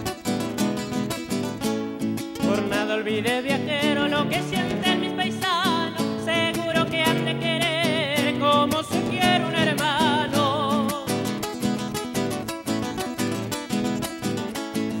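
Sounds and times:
acoustic guitars strummed: 0:00.0 - 0:15.0
man singing with vibrato: 0:02.4 - 0:11.6.

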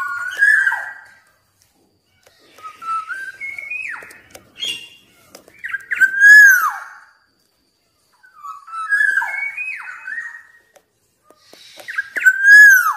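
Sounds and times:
bird singing whistled phrases: 0:00.0 - 0:01.3, 0:02.5 - 0:07.3, 0:08.2 - 0:10.7, 0:11.7 - 0:12.9.

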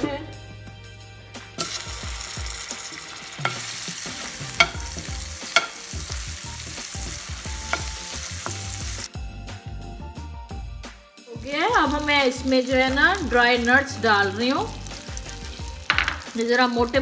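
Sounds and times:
metal spoon stirring: 0:01.6 - 0:06.0, 0:14.4 - 0:16.7
butter sizzling in hot caramel: 0:01.6 - 0:09.1, 0:11.4 - 0:17.0
spoon clicking against pan: 0:04.6 - 0:06.0, 0:07.7 - 0:08.6.

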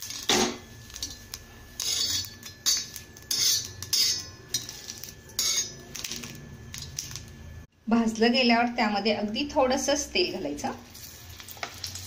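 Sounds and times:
utensil scraping chillies on iron pan: 0:00.0 - 0:07.2.

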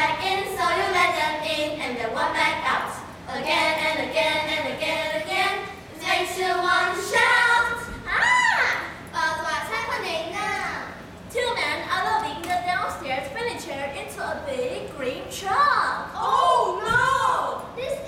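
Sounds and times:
children singing in unison: 0:03.3 - 0:08.0.

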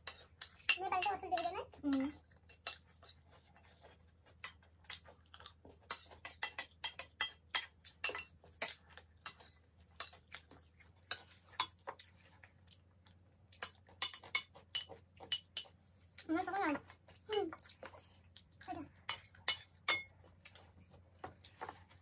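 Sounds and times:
spoons clinking on ceramic plates: 0:00.0 - 0:03.8, 0:05.8 - 0:10.3, 0:11.0 - 0:11.8, 0:13.6 - 0:15.8, 0:19.0 - 0:22.0.

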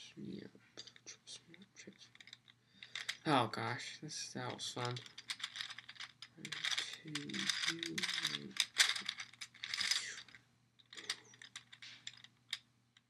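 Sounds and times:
plastic puzzle gears clicking: 0:02.1 - 0:03.3, 0:04.7 - 0:12.6.

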